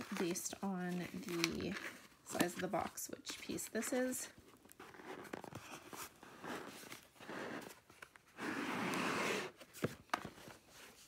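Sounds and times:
packaging rustling: 0.0s - 8.4s
box tray sliding open: 6.4s - 9.7s.

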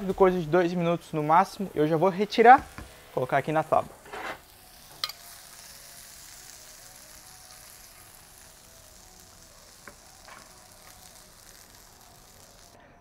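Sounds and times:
shrimp sizzling in frying pan: 2.6s - 12.8s.

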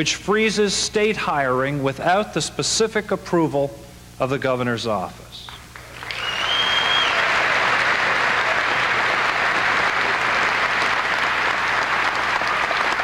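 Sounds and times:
audience applauding: 5.7s - 13.0s
high whistle: 6.0s - 7.4s.

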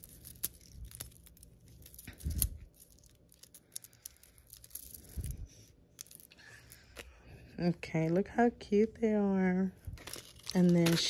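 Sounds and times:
plastic packaging crinkling: 0.0s - 7.3s, 9.8s - 11.0s.

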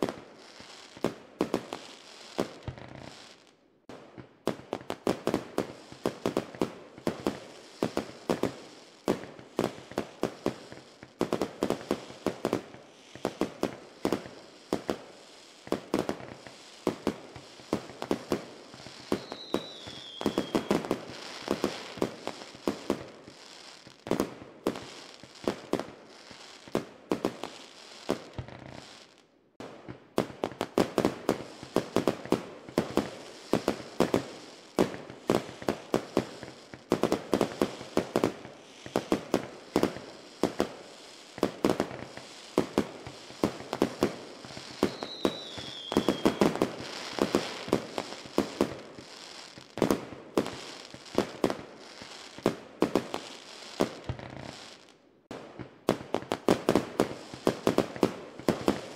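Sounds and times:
fireworks banging: 15.6s - 23.4s, 29.6s - 49.2s
falling firework whistle: 18.7s - 23.8s, 31.3s - 51.2s.

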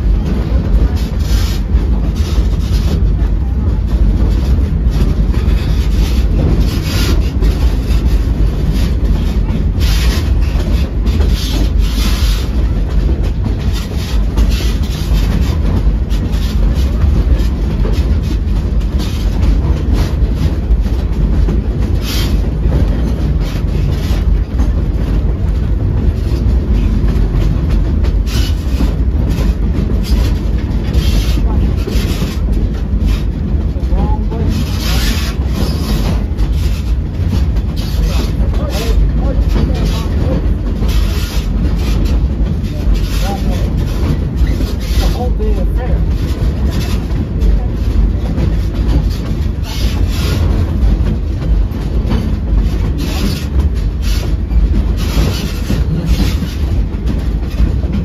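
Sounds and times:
train car rumble: 0.0s - 58.0s
wheels clattering on rails: 0.0s - 58.0s.

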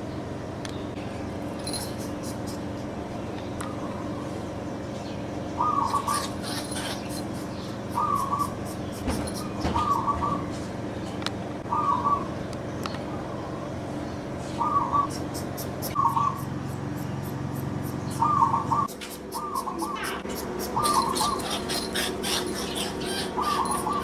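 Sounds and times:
steady low hum: 0.0s - 24.0s
animal squeaky calls: 5.6s - 10.5s, 14.6s - 24.0s.

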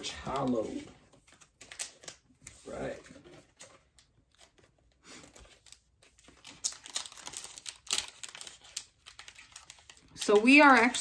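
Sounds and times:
foil wrapper crinkling and tearing: 5.4s - 11.0s.

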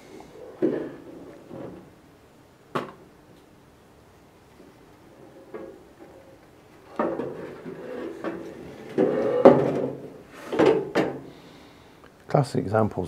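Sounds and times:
scraping and clunking on workbench: 6.8s - 11.3s.

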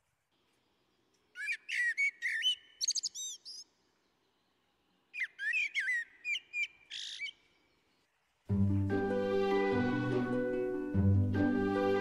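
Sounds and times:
songbird singing whistled notes: 1.3s - 3.7s, 5.1s - 7.6s.

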